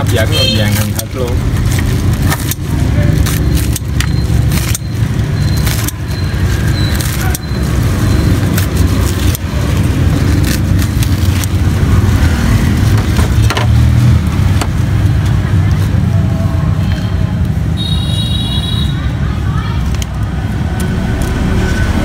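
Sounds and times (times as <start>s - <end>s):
background traffic rumble: 0.0s - 22.0s
scissors snipping crisp bread: 1.6s - 12.1s.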